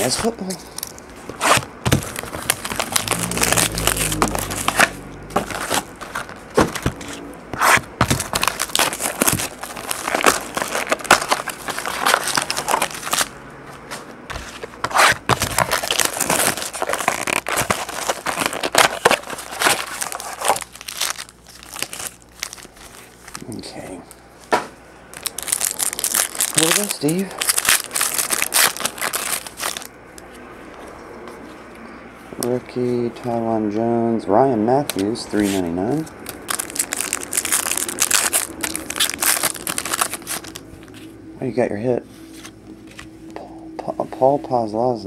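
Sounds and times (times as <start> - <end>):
plastic shrink wrap crinkling: 0.0 - 13.4, 14.3 - 23.7, 25.1 - 29.9, 34.9 - 41.1
foil packs rustling: 0.0 - 23.9, 25.1 - 29.9, 34.9 - 41.1.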